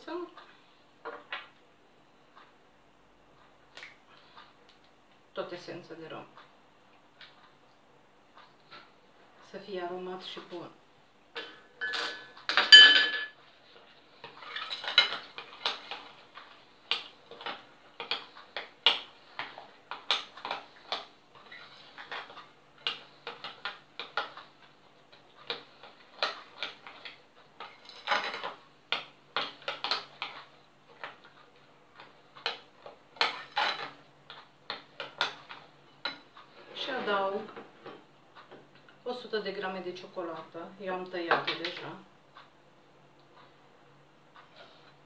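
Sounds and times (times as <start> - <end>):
metal spoon clinking and scraping bowl: 11.4 - 13.4, 14.2 - 16.1.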